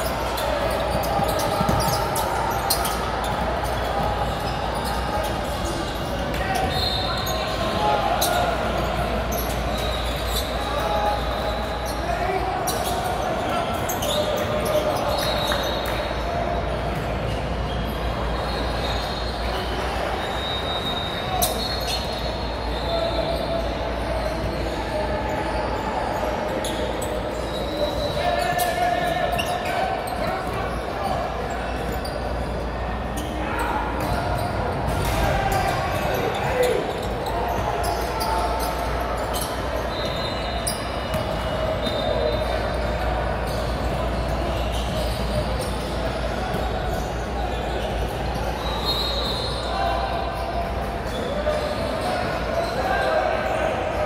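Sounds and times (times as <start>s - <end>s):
crowd chatter: 0.0s - 54.0s
echoing gymnasium din: 0.0s - 54.0s
basketballs bouncing: 0.7s - 6.8s.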